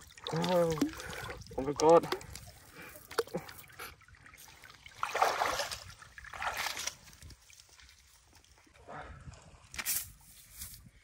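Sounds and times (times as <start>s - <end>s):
feet sloshing through muddy water: 0.0s - 9.0s.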